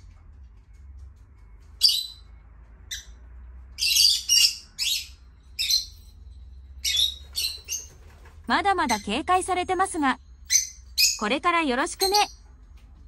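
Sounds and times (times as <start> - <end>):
parrots chirping and squawking: 1.8 - 2.3, 2.9 - 6.2, 6.8 - 9.2, 10.4 - 11.3, 12.0 - 12.4.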